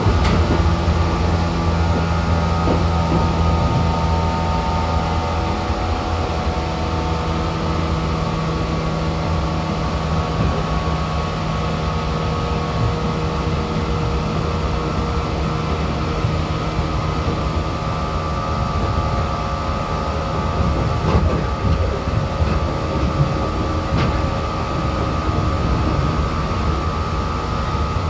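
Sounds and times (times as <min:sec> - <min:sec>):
train motor humming: 0:00.0 - 0:28.0
wheels rumbling on rail: 0:00.0 - 0:28.0.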